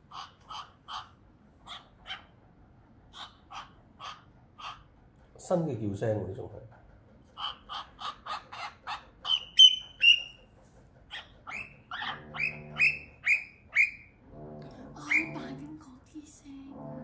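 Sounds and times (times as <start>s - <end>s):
cockatiel giving sharp calls: 0.1s - 2.3s, 3.1s - 4.9s, 7.4s - 10.4s, 11.1s - 14.2s.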